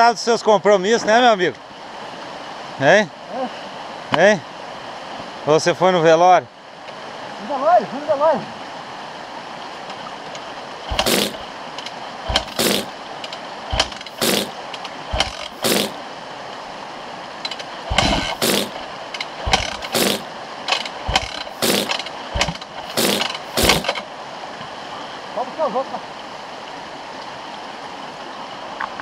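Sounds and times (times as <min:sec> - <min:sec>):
shallow stream rushing: 0:00.7 - 0:29.0
dirt bike kick-started: 0:10.9 - 0:11.4, 0:12.3 - 0:16.0, 0:17.5 - 0:24.0.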